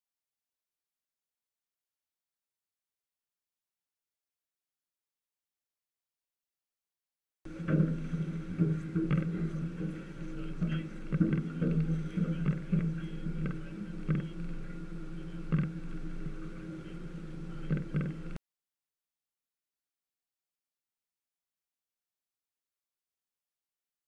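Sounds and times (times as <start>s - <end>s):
knocks and clicks: 7.5s - 14.5s, 17.6s - 18.4s
boat engine idling: 7.5s - 18.4s.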